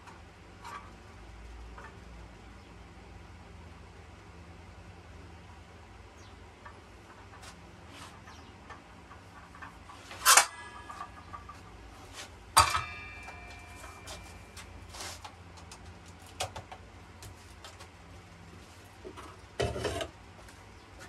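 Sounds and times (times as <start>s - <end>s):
sharp metallic clanks: 9.4s - 15.1s.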